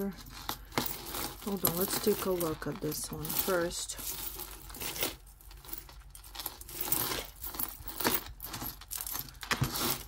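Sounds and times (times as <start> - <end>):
beaded necklace clicking and rustling: 0.0 - 10.0.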